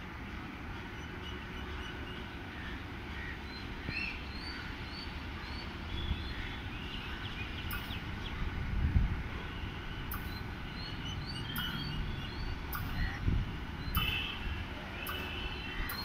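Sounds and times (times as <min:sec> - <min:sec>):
birds chirping: 0:09.9 - 0:16.0.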